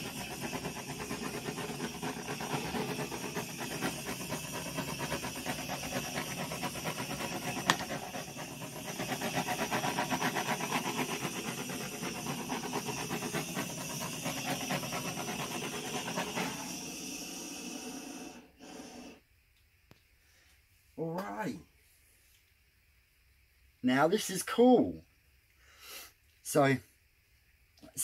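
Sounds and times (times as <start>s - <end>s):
butane torch flame hissing: 0.0s - 19.3s.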